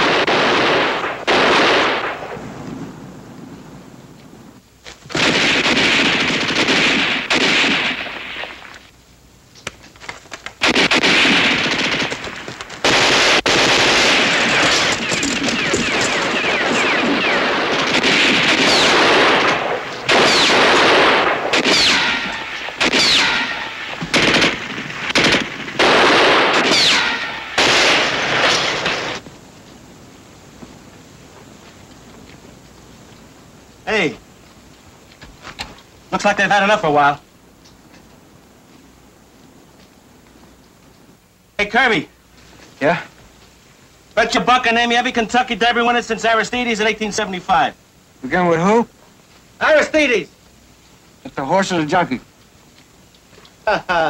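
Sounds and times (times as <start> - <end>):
automatic gunfire: 0.0 - 2.4, 5.1 - 8.7, 10.6 - 29.2.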